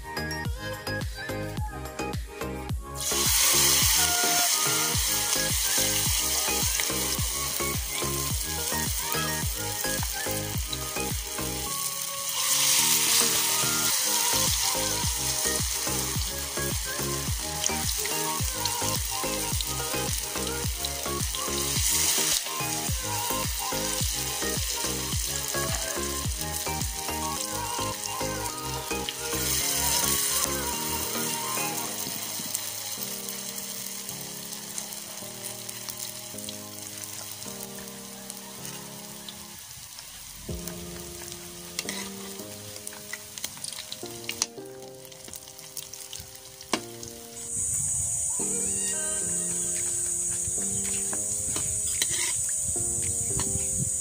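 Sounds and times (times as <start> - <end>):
background music with steady beat: 0.0 - 39.2
batter frying in hot oil: 3.0 - 48.9, 49.8 - 54.0
spatula stirring fritters: 41.2 - 44.0, 50.8 - 52.6.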